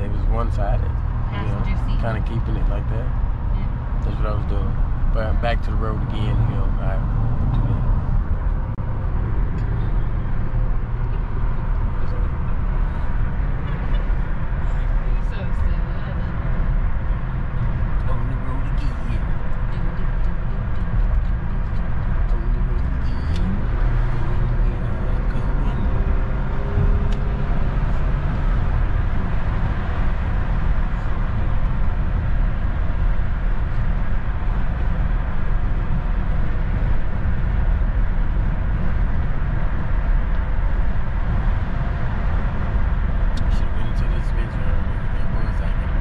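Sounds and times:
car road and engine noise: 0.0 - 46.0.

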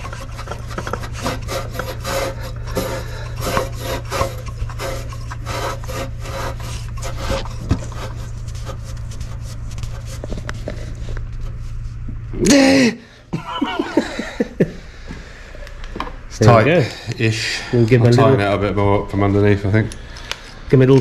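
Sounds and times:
hand rubbing and scraping: 0.0 - 12.3
steady low hum: 0.0 - 21.0.

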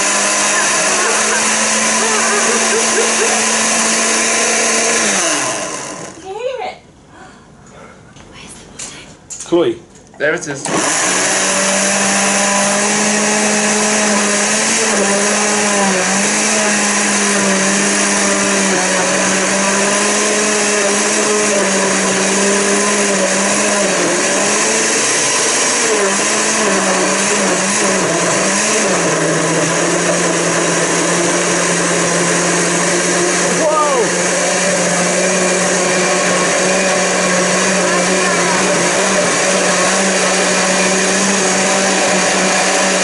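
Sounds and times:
blender motor whine: 0.0 - 6.2, 10.6 - 43.0.

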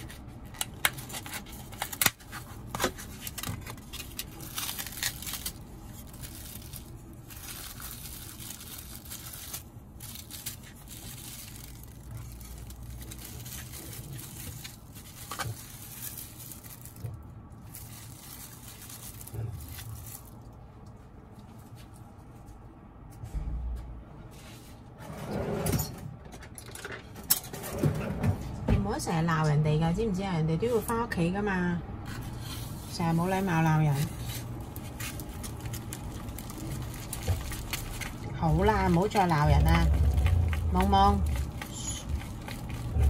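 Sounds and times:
plastic film tearing and crinkling: 0.0 - 20.6, 32.1 - 43.0.

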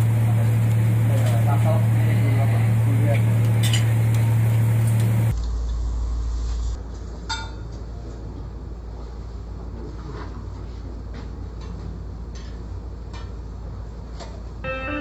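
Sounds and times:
boat engine drone: 0.0 - 6.7.

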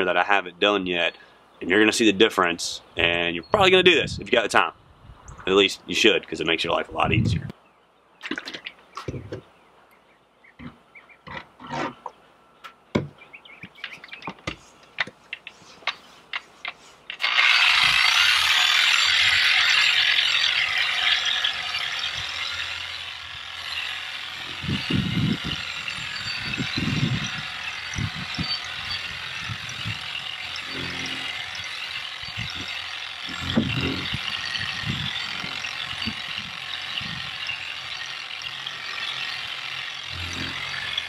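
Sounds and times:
polisher running: 17.2 - 34.6, 38.4 - 41.0.

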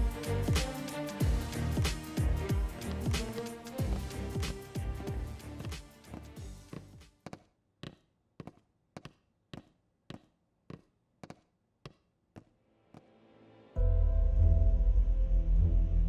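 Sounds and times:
footsteps walking: 1.2 - 13.1.

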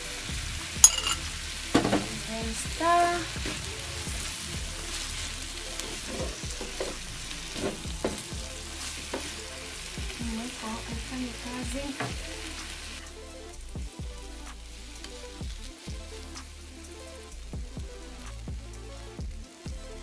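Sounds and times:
food sizzling in frying pan: 0.1 - 13.0, 14.7 - 16.2.

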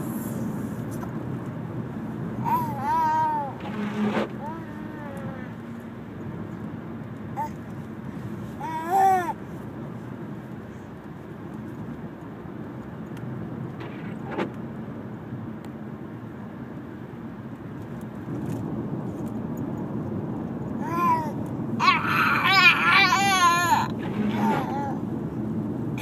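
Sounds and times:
car cabin road and engine noise: 0.0 - 26.0
baby high-pitched squeal: 2.4 - 5.5, 8.6 - 9.4, 20.8 - 25.0.

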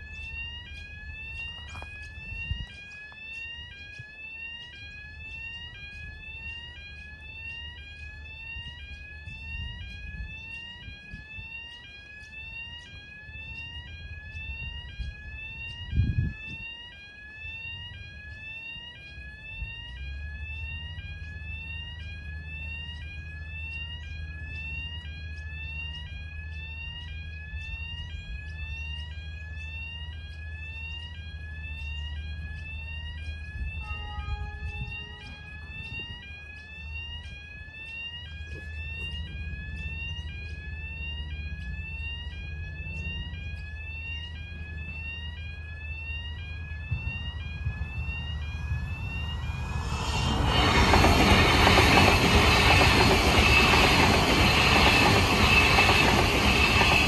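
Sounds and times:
electronic alarm rising tone: 0.0 - 57.0
low rumble: 46.7 - 53.7.

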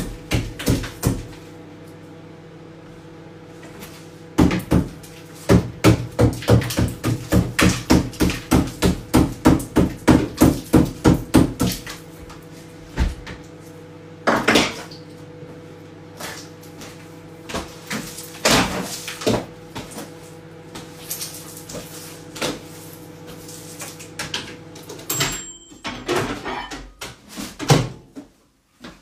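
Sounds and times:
hammer striking refrigerator: 0.0 - 1.4, 4.4 - 11.9, 17.5 - 20.0, 25.1 - 28.2.

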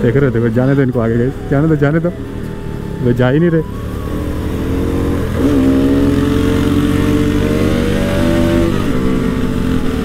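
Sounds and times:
motorcycle engines racing: 0.0 - 10.0.

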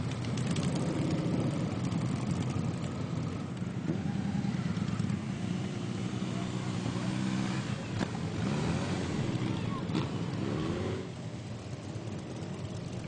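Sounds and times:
motorcycles riding past: 0.0 - 13.0.

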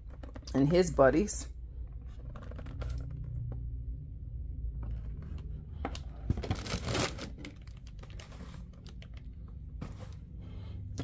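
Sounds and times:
low steady hum: 0.0 - 11.0
cardboard rustling scrape: 6.2 - 8.9.

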